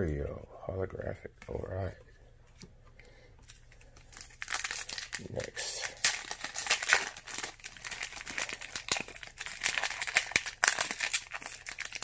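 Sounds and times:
foil wrapper crinkling: 0:03.5 - 0:12.0.

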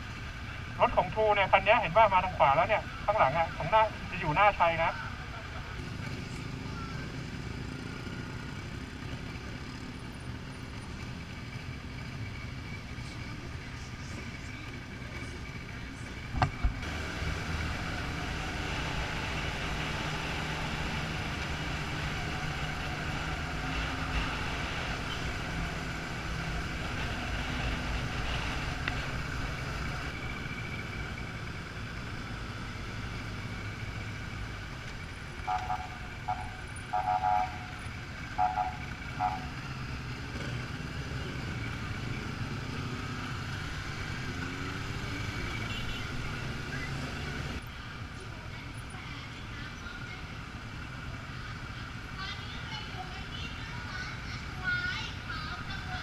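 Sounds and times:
wind and road noise: 0:00.0 - 0:56.0
horn tooting: 0:35.4 - 0:39.7, 0:45.5 - 0:46.4.

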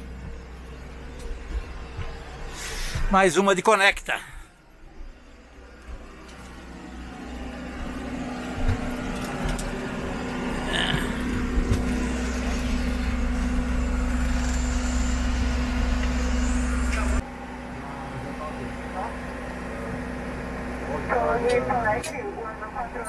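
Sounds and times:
engine rumbling: 0:00.0 - 0:23.0.

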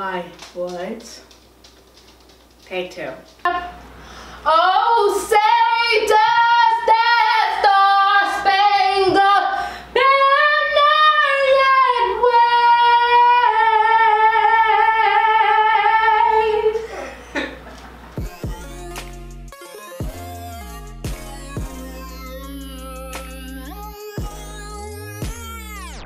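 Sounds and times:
woman singing unaccompanied: 0:04.5 - 0:16.9
electronic music: 0:18.2 - 0:26.0.

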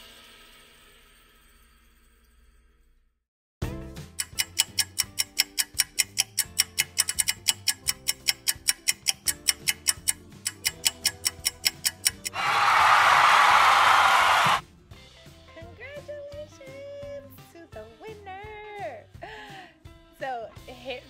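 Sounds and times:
background music: 0:03.6 - 0:21.0
spinning wheel ticking: 0:04.1 - 0:12.4.

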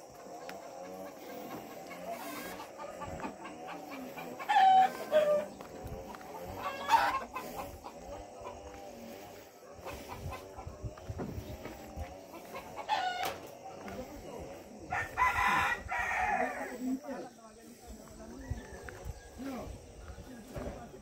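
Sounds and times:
rooster crowing: 0:01.2 - 0:05.7, 0:06.5 - 0:07.7, 0:12.5 - 0:13.5, 0:14.8 - 0:17.0.

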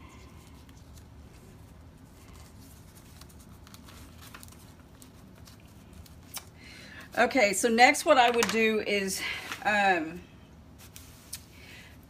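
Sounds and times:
steady low hum: 0:00.0 - 0:12.0
paper rustling: 0:00.2 - 0:06.6, 0:10.8 - 0:11.5.

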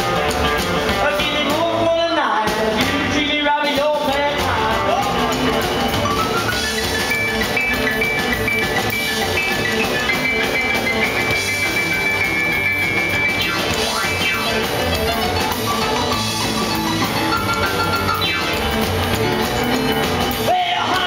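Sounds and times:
drum kit: 0:00.0 - 0:21.0
piano played hard: 0:05.9 - 0:20.4.

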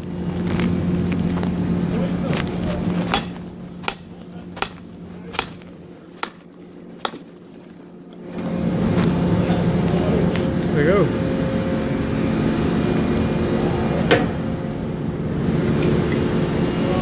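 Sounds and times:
engine humming: 0:00.0 - 0:17.0
sharp knocks: 0:03.1 - 0:07.3.

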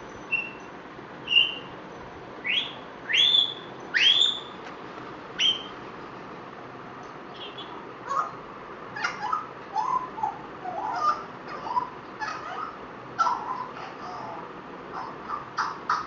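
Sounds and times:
parrot chattering and squawking: 0:02.4 - 0:04.6, 0:05.4 - 0:05.7, 0:07.3 - 0:16.0.

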